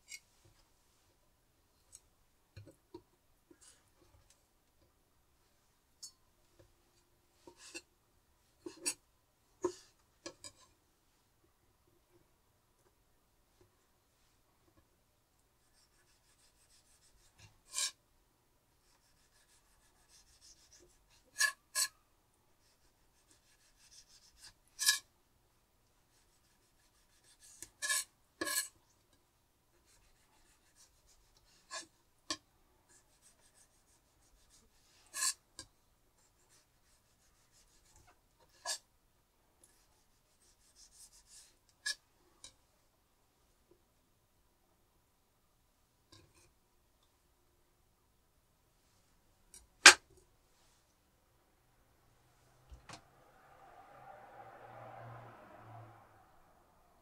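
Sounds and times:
scraping and rubbing strokes: 0:15.6 - 0:18.0, 0:18.8 - 0:22.0, 0:22.6 - 0:25.1, 0:26.0 - 0:28.8, 0:29.8 - 0:32.0, 0:32.9 - 0:38.8, 0:39.6 - 0:42.1.

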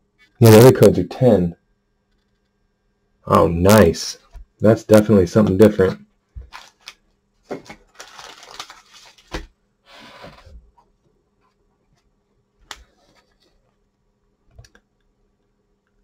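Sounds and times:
wrappers rustling and crinkling: 0:06.4 - 0:09.5.

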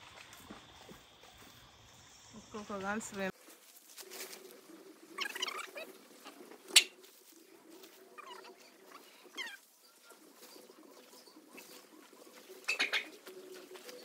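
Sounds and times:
birds chirping: 0:04.0 - 0:14.0.

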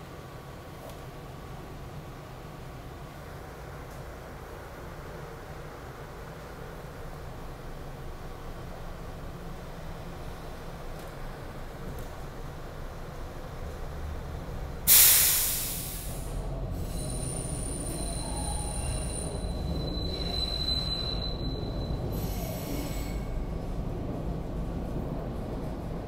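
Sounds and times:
subway train rumbling: 0:00.0 - 0:26.0
loud hiss: 0:14.9 - 0:17.6
wheels squealing high-pitched: 0:16.8 - 0:23.4.

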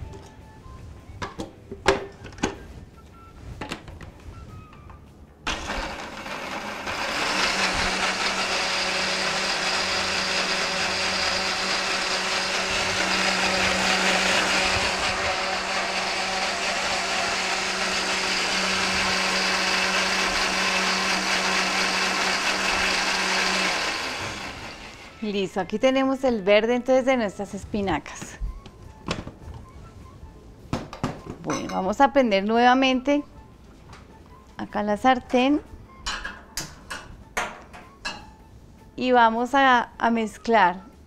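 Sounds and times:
blender running: 0:05.5 - 0:25.2.

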